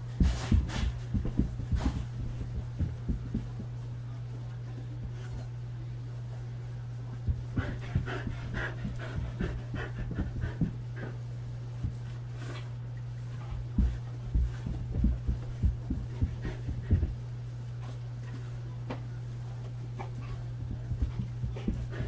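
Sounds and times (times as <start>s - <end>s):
footfalls on carpet: 0.0s - 3.9s, 7.2s - 10.8s, 13.3s - 18.5s, 19.6s - 22.0s
steady low hum: 0.0s - 22.0s
dog panting: 7.3s - 12.0s, 13.4s - 17.3s, 20.0s - 22.0s.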